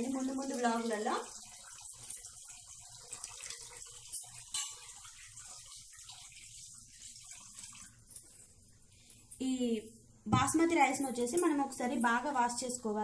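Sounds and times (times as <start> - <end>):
water sloshing and splashing: 0.6 - 8.6.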